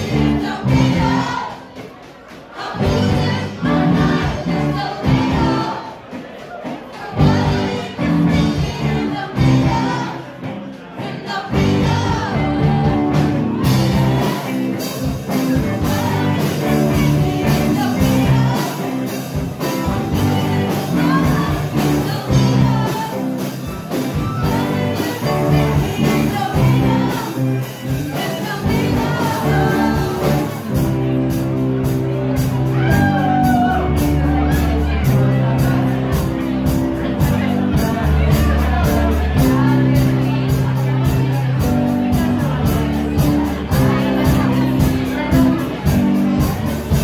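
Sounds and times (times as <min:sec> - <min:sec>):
live pop-rock band: 0:00.0 - 0:47.0
person singing: 0:07.0 - 0:47.0
cymbals and drums: 0:12.6 - 0:47.0.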